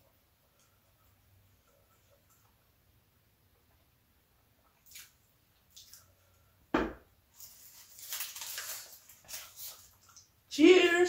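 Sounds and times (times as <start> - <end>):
bowl thumping on wooden board: 6.8 - 7.1
aluminium foil crinkling: 7.3 - 10.3.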